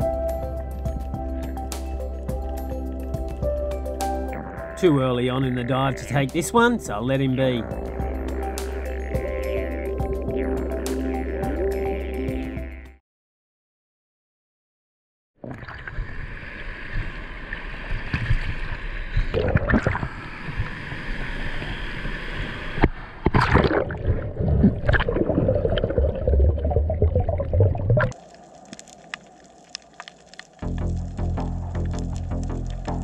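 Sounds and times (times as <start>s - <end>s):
water sloshing and splashing: 22.8s - 30.8s
faint underwater clicks: 28.0s - 33.0s.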